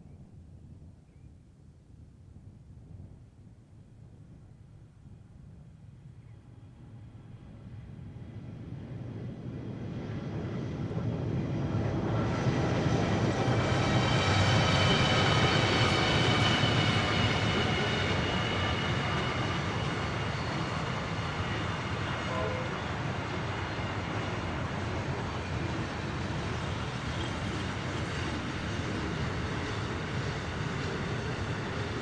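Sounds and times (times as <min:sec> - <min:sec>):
diesel locomotive engines passing: 0:06.5 - 0:32.0
high whine: 0:13.1 - 0:29.6.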